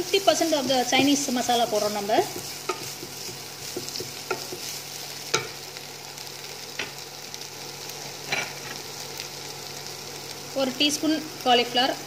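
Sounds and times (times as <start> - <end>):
food sizzling in a wok: 0.0 - 12.0
wooden spatula knocking pan: 2.2 - 4.7.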